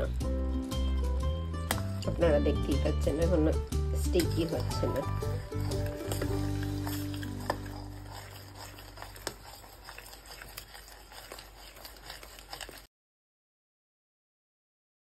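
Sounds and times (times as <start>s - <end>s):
music track: 0.0s - 8.9s
spoon stirring syrup: 0.7s - 12.9s
syrup boiling with small pops: 4.1s - 12.9s.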